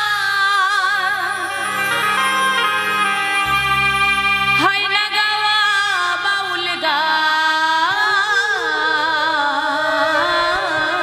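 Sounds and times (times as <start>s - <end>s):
woman singing folk song: 0.0s - 1.6s, 4.6s - 11.0s.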